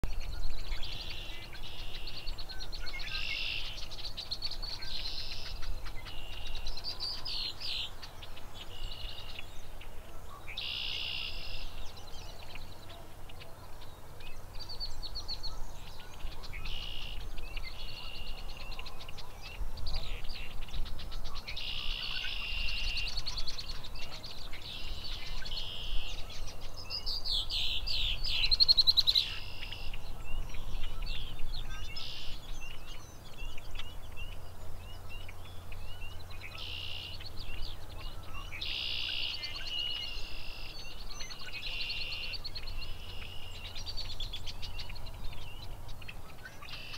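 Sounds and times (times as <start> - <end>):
songbirds singing: 0.0 - 46.9.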